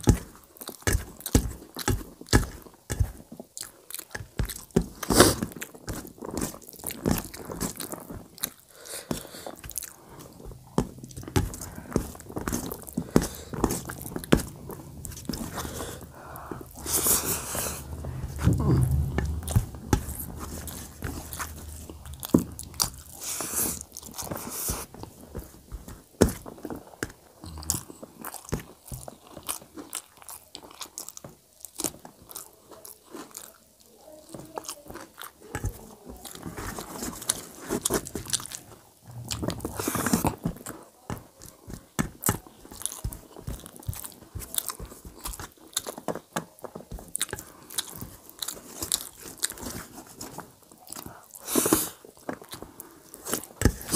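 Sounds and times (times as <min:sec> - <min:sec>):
person chewing and smacking: 0:00.0 - 0:16.9, 0:27.4 - 0:33.9, 0:41.4 - 0:49.8.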